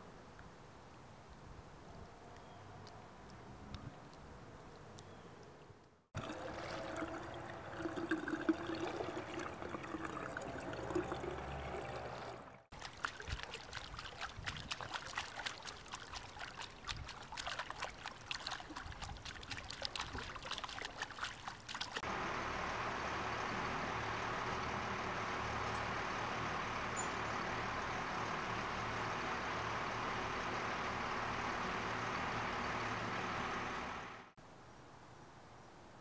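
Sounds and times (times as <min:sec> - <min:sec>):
feet splashing in pool water: 0:06.2 - 0:22.1.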